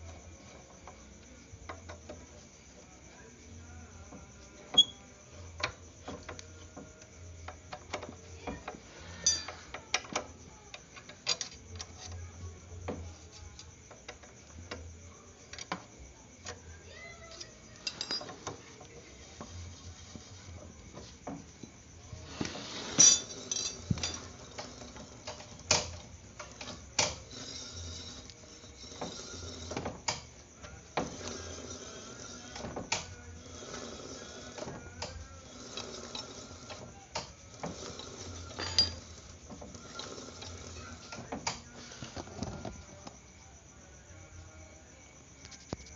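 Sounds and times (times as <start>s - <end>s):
metal tools clinking and tapping: 9.2s - 10.2s, 17.3s - 18.6s, 22.9s - 30.2s, 35.0s - 40.7s.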